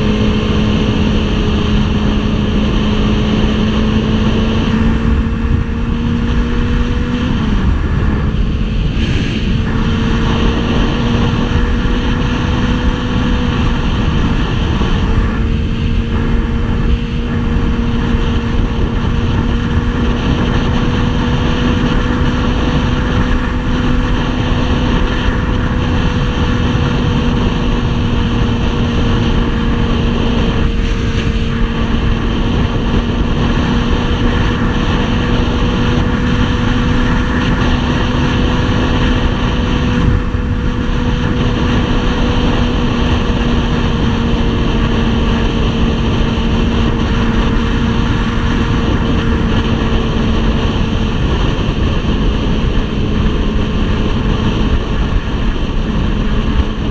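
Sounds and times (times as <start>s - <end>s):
motorcycle engine cruising: 0.0s - 56.9s
wind rush on microphone: 0.0s - 56.9s.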